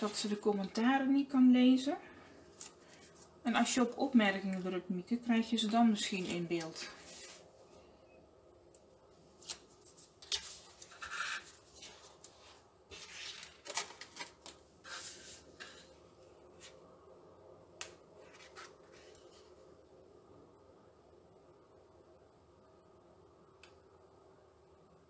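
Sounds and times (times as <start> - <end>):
paper and card rustling: 9.4 - 15.8, 18.2 - 19.5.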